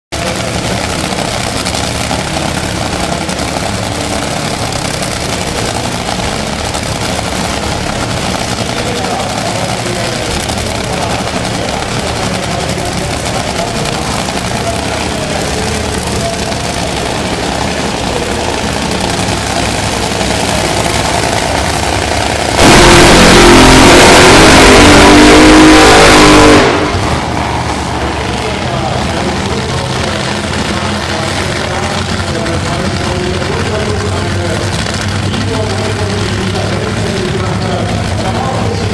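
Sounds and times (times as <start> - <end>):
dragster engine idling loudly: 0.1 - 38.9.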